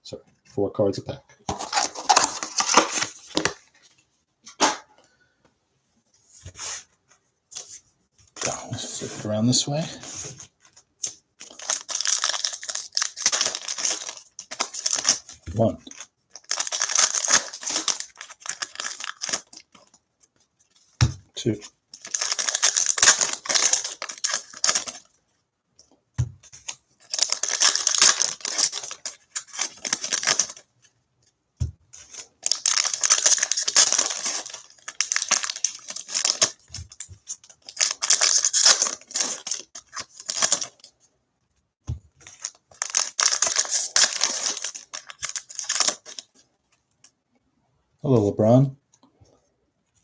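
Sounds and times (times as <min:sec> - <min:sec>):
foil packs tearing and crinkling: 0:01.6 - 0:03.0, 0:11.4 - 0:19.6, 0:22.0 - 0:25.1, 0:26.6 - 0:30.6, 0:32.1 - 0:40.9, 0:42.2 - 0:46.3.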